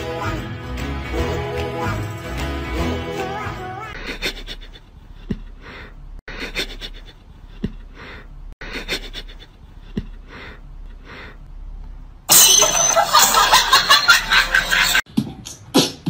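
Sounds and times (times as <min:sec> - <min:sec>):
loud music: 0:00.0 - 0:03.8.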